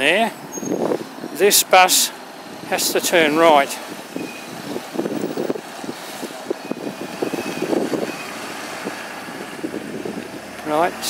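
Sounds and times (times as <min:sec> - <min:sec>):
bus driving off: 0:00.0 - 0:11.0
vehicles passing close by: 0:00.0 - 0:11.0.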